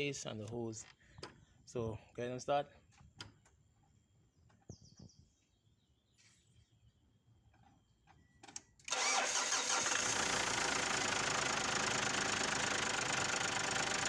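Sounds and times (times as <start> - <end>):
diesel engine starting and idling: 8.8 - 14.0.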